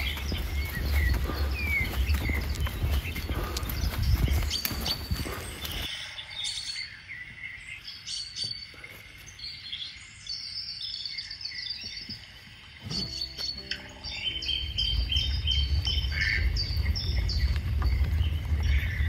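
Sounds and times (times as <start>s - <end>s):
songbirds chirping: 0.0s - 19.0s
muffled low rumble with knocks: 15.2s - 19.0s.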